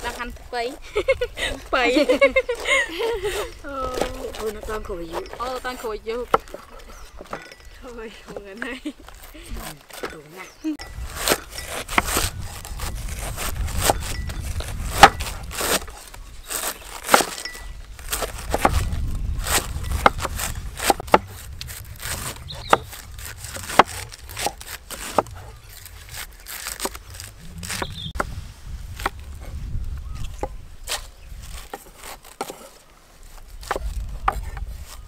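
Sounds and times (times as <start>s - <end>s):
cleaver chopping cabbage on wood: 3.3s - 7.5s, 9.2s - 28.3s, 30.3s - 35.0s.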